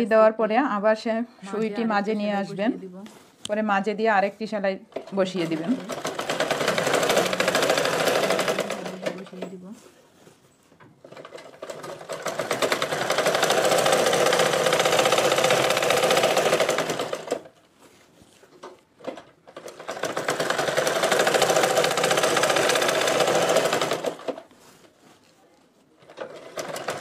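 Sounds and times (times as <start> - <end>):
sewing machine stitching: 4.9 - 9.6, 11.0 - 17.6, 19.0 - 24.7, 26.0 - 27.0.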